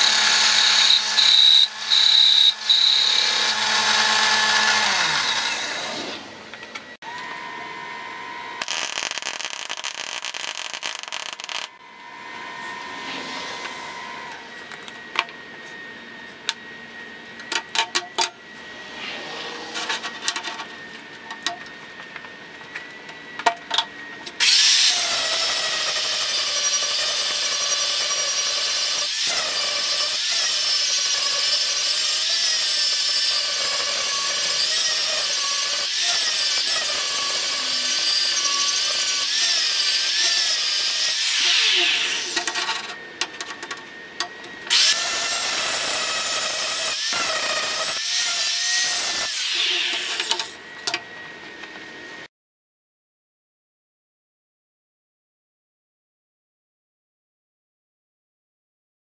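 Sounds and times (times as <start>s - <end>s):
angle grinder grinding steel: 0.0s - 16.6s, 24.4s - 43.0s, 44.7s - 50.6s.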